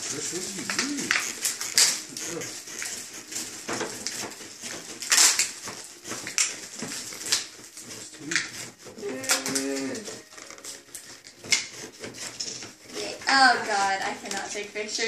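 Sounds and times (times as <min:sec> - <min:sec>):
wordless moaning call: 0:00.2 - 0:01.4, 0:08.8 - 0:10.3.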